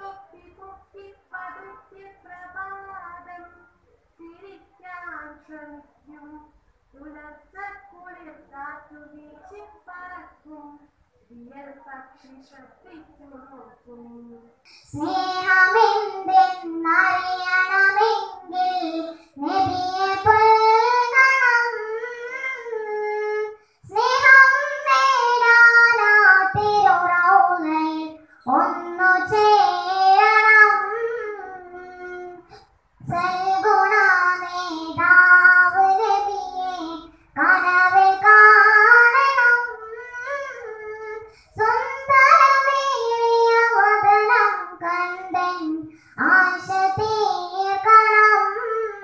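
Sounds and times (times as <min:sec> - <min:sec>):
girl singing into microphone: 0:00.0 - 0:49.0.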